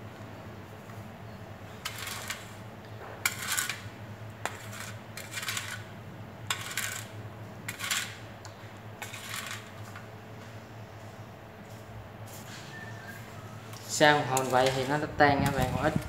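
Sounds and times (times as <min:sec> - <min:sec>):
plastic spoon scraping metal bowl: 0:04.4 - 0:05.9, 0:06.5 - 0:08.2, 0:09.0 - 0:09.7.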